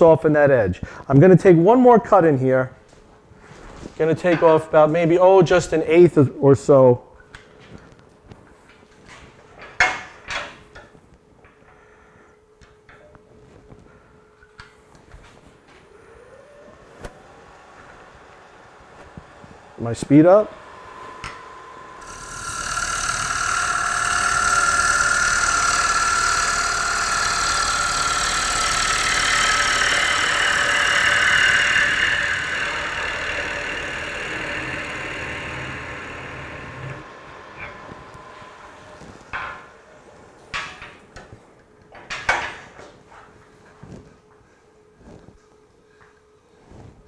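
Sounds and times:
wood lathe cutting with ringing tone: 16.1 - 40.7.

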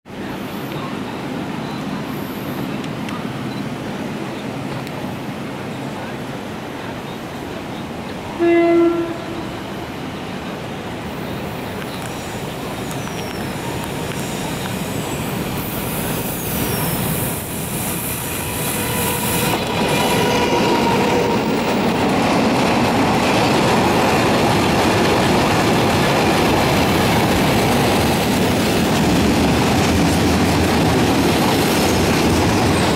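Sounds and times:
train horn blast: 8.4 - 9.7, 18.5 - 21.7
train wheels clattering on rails: 11.4 - 32.9.

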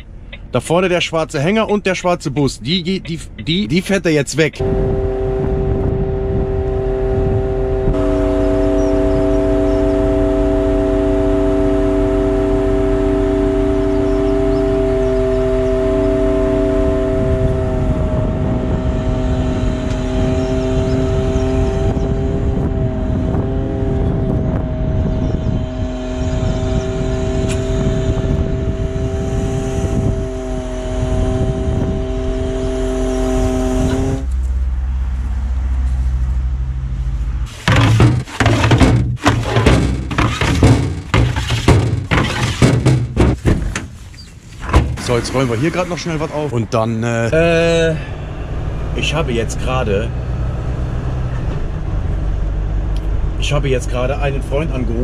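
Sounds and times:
hydraulic pump hum: 4.5 - 35.5, 36.4 - 46.5.

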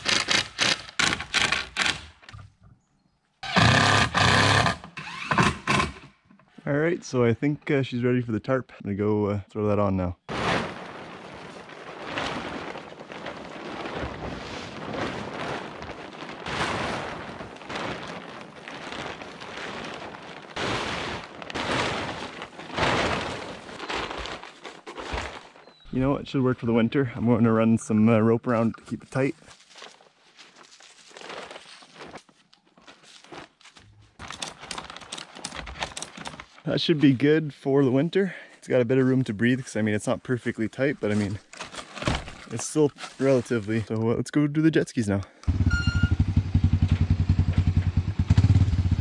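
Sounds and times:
plastic tarp rustling: 10.2 - 26.2, 28.5 - 37.3, 38.9 - 44.0
clicks and rattles: 34.2 - 36.6.

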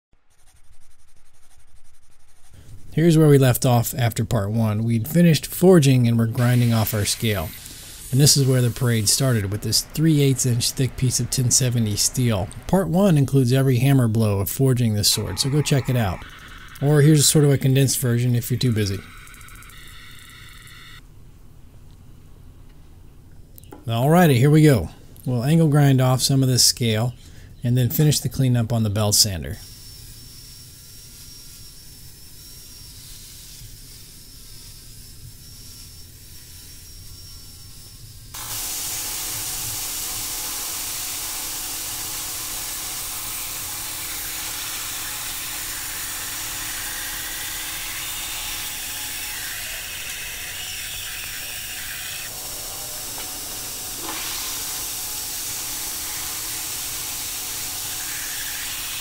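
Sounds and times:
angle grinder grinding steel: 3.4 - 21.0, 29.7 - 59.0
belt sander grinding blade: 5.1 - 21.0, 29.6 - 59.0.

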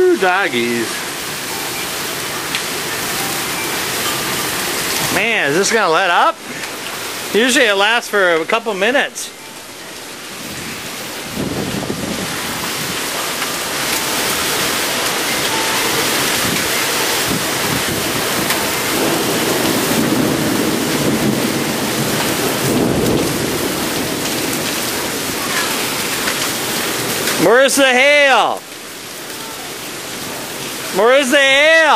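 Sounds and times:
heavy wind-driven rain: 0.0 - 31.9
thunder rumble: 10.3 - 13.7, 15.5 - 26.2.

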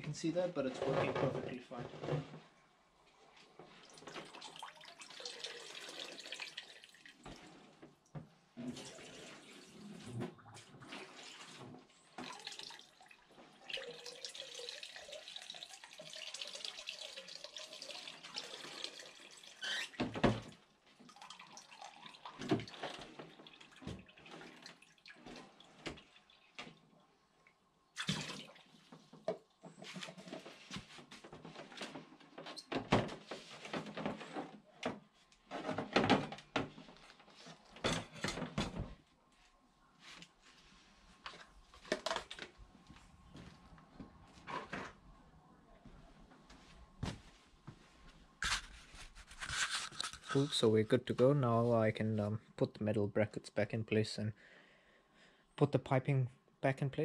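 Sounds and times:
water splashing into plastic bucket: 3.7 - 7.5, 8.6 - 26.8, 28.0 - 30.4.

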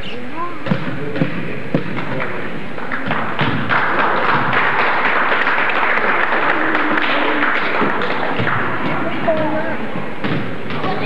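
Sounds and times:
audience applauding: 2.0 - 9.3.

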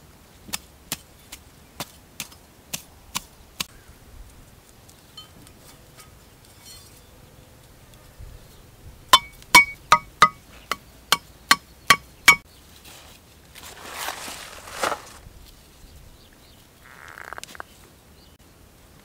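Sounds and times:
machete striking wooden stake: 9.1 - 10.4
grass rustling: 12.3 - 18.0.

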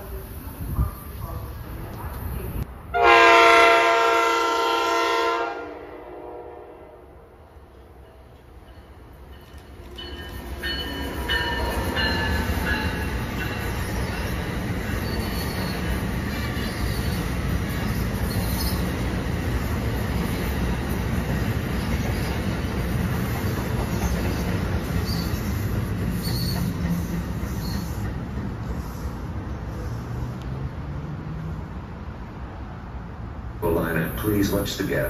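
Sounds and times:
train wheels rushing and rumbling: 7.8 - 35.0.

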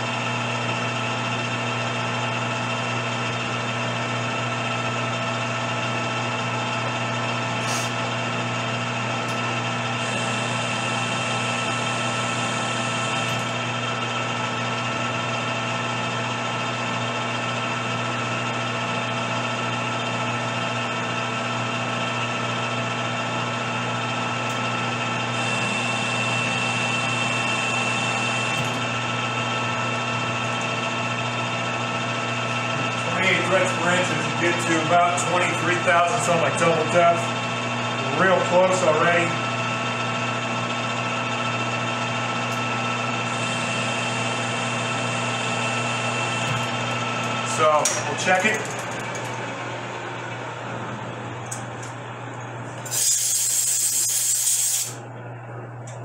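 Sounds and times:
metal lathe whining: 0.1 - 55.0
threading tool cutting hiss: 52.8 - 55.0.

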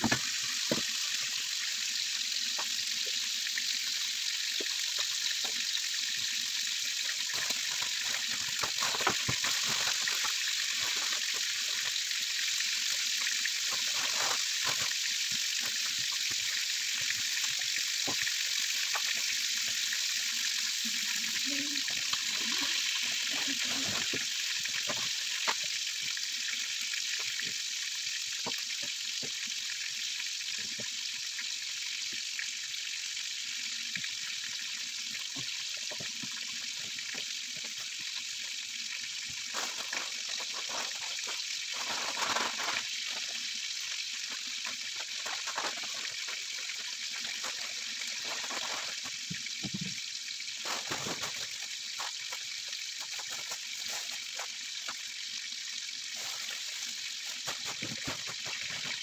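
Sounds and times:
chicken frying in a pan: 0.0 - 59.0.

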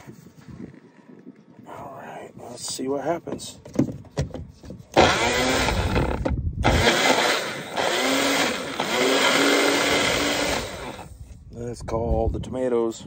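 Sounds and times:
blender motor grinding: 5.0 - 11.1.

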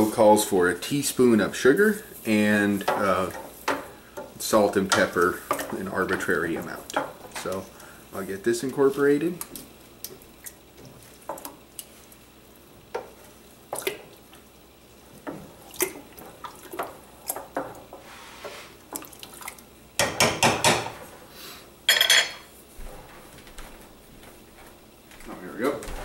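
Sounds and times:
wooden spoon stirring sauce in pot: 1.1 - 19.6
spoon knocking against pot: 20.0 - 21.0.

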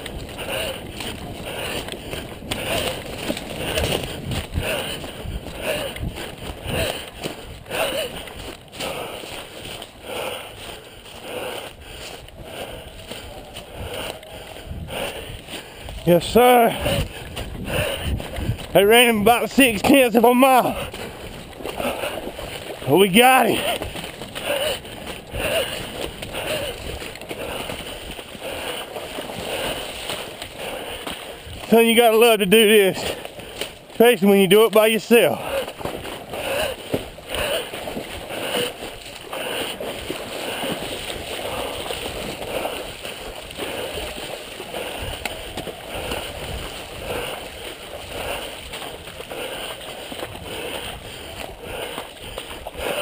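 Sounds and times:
footsteps splashing through water: 0.0 - 53.0.

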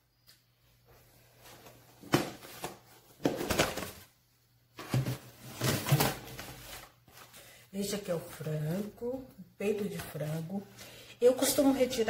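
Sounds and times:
plastic rustling and scraping: 4.7 - 7.5.

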